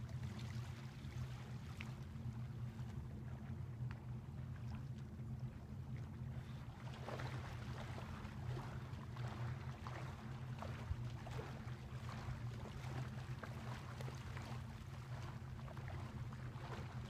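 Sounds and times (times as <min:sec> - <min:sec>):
low steady hum: 0:00.0 - 0:17.0
small waves lapping on sand: 0:06.3 - 0:17.0.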